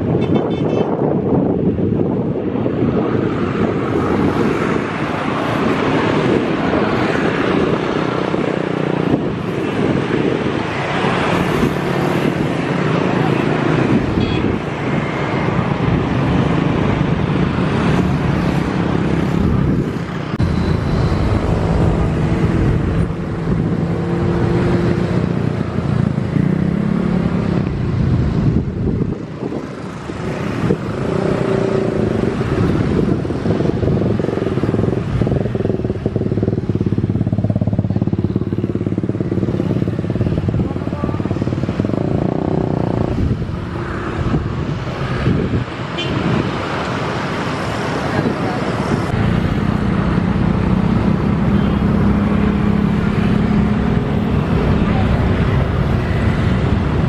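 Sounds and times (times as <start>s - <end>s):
traffic passing on road: 0.0s - 57.0s
distant aircraft engine: 2.5s - 26.7s.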